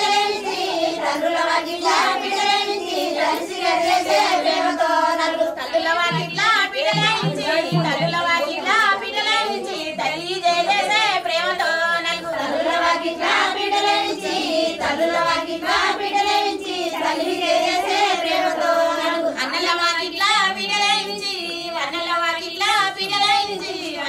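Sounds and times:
high voices singing: 0.0 - 24.0.

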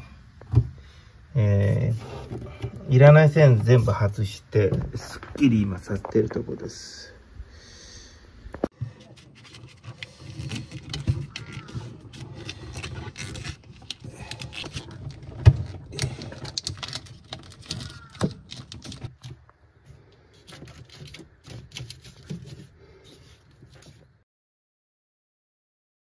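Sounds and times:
plastic conduit clicking and rattling: 8.9 - 19.5.

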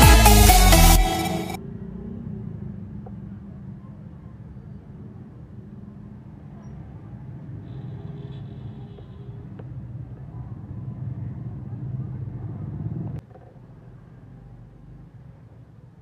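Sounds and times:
low mechanical rumble: 9.8 - 13.2.

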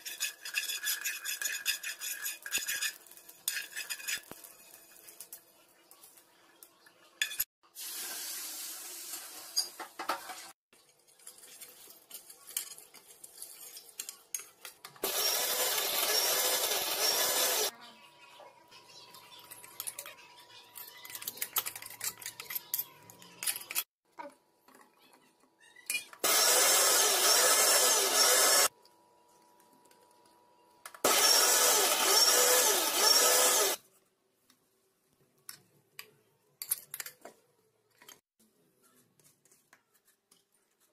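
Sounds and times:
mixer grinder running: 15.0 - 17.7, 26.2 - 28.7, 31.1 - 33.8.

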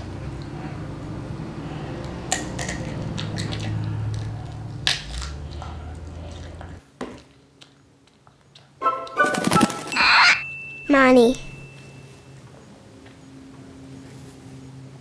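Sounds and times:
child chewing crunchy broccoli: 2.0 - 6.8.

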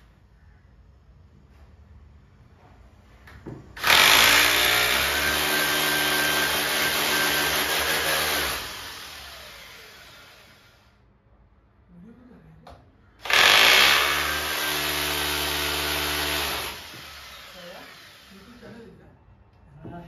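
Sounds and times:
electric drill boring into wall: 3.8 - 11.0, 13.2 - 18.6.

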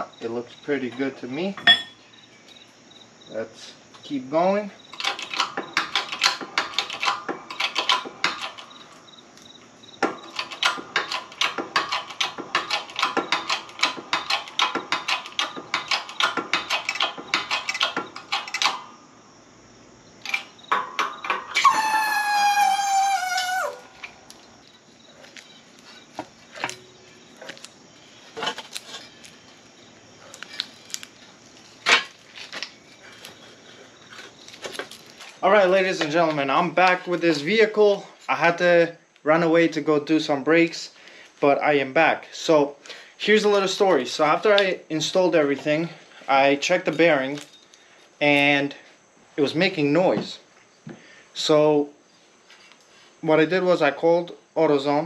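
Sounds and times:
metal clicks: 10.0 - 18.9.

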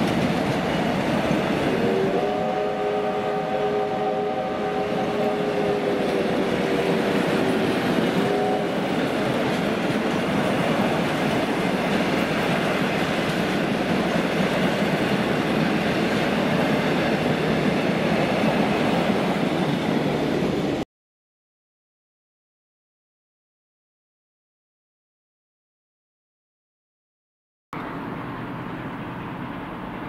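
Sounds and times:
train wheels rushing on rails: 0.0 - 20.8.

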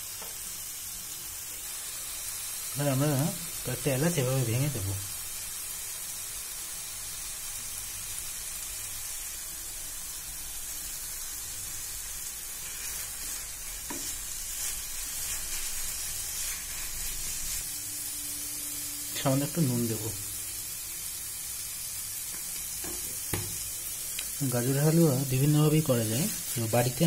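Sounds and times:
food sizzling in a frying pan: 0.0 - 27.0
wooden spatula stirring: 12.6 - 17.7.

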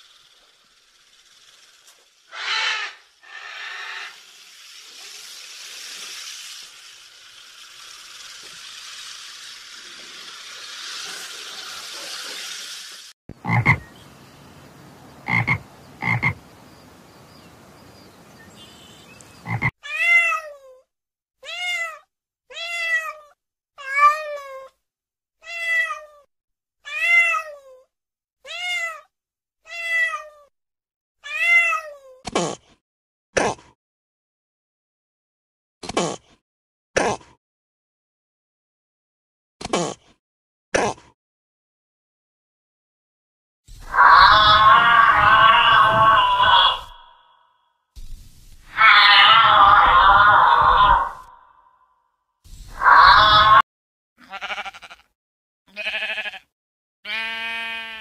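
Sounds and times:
steady hissing: 0.0 - 13.2, 43.7 - 47.2, 48.0 - 51.3
frog croaking: 13.3 - 13.9, 15.2 - 16.4, 19.4 - 19.7, 43.8 - 47.5
kitten meowing: 21.4 - 24.6, 43.8 - 47.0, 48.7 - 51.2, 52.8 - 53.6.

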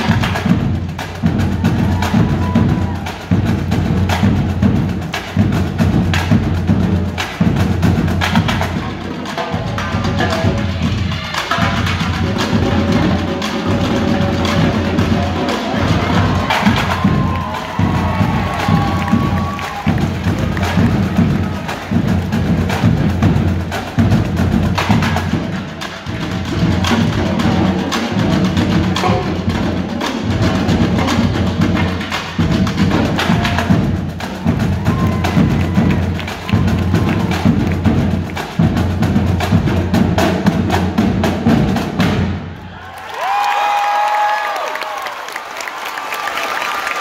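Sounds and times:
drumline playing cadence: 0.0 - 47.0
crowd cheering: 1.3 - 3.5, 14.2 - 23.0, 33.1 - 38.5, 42.3 - 47.0.

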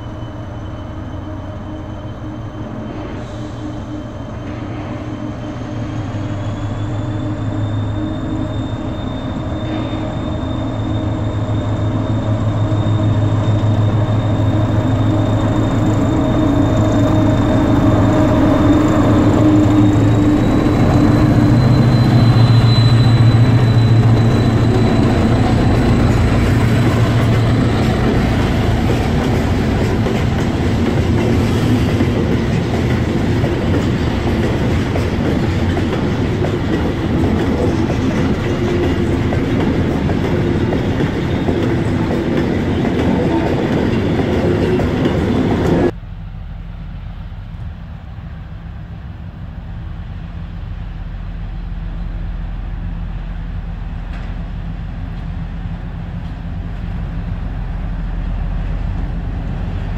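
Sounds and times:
locomotive hum and rumble: 0.0 - 59.9
train wheels clattering over rail joints: 23.4 - 45.9.

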